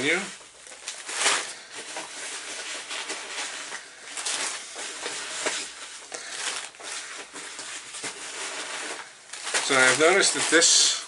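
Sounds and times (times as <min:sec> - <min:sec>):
packing peanuts rustling: 0:00.0 - 0:11.0.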